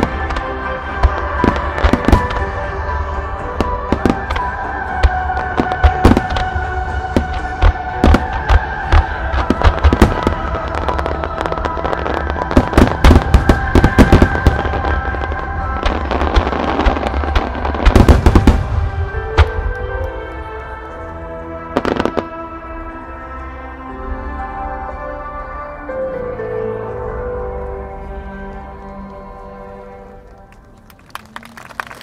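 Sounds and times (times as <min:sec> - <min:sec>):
fireworks bursting: 0:00.0 - 0:20.1
music: 0:00.0 - 0:32.0.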